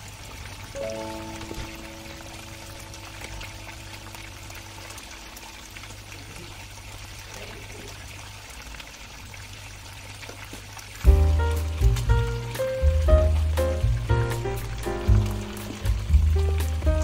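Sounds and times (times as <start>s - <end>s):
water running: 0.0s - 17.0s
small splashes and clicks: 10.0s - 11.1s.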